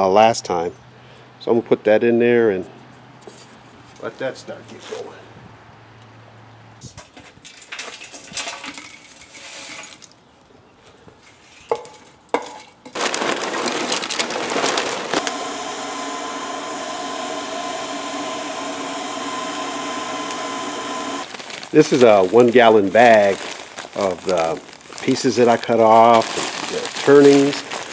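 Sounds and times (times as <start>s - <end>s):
charcoal chunks clattering: 7.0s - 10.2s, 11.7s - 15.3s, 21.2s - 27.9s
charcoal pouring from a bag: 7.5s - 10.2s, 12.9s - 27.9s
electric blower whining: 13.0s - 22.4s.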